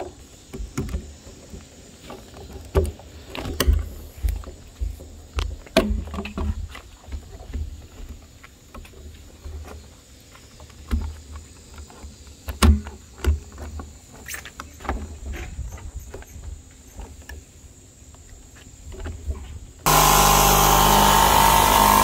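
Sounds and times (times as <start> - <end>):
jigsaw cutting plastic: 19.9 - 22.0.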